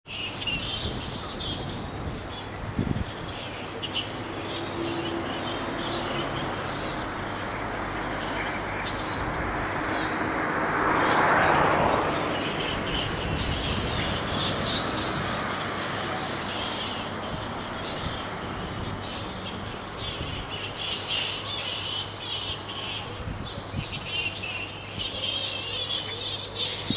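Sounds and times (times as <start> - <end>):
fruit bats squeaking and chattering: 0.1 - 26.9
passing vehicle: 4.2 - 20.8.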